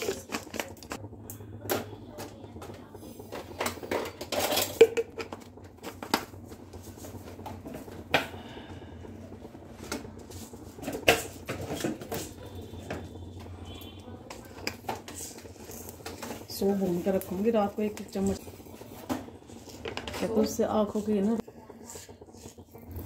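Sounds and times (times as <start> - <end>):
utensils and dishes clattering: 0.0 - 1.0, 3.3 - 5.4.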